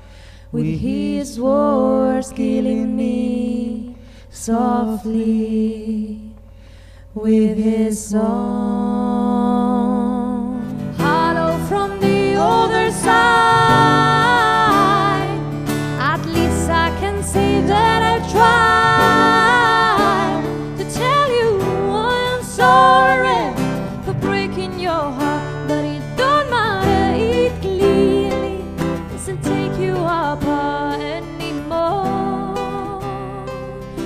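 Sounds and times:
high wordless singing voice: 0:07.1 - 0:34.0
acoustic guitars playing: 0:10.4 - 0:34.0.

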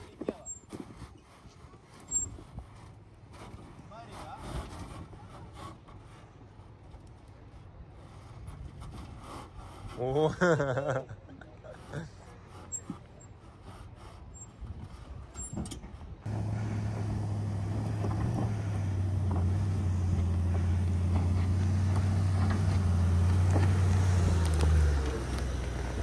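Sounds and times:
car engine running: 0:16.3 - 0:26.0.

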